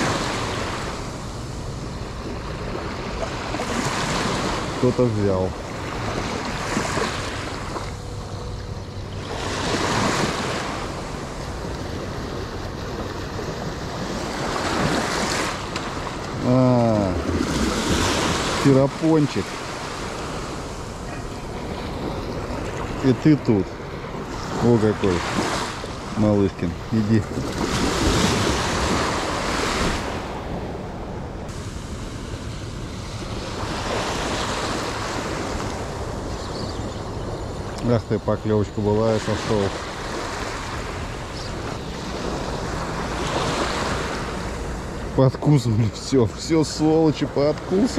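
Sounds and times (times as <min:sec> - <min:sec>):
small waves washing in: 0:00.0 - 0:47.9
wind buffeting microphone: 0:05.5 - 0:37.8.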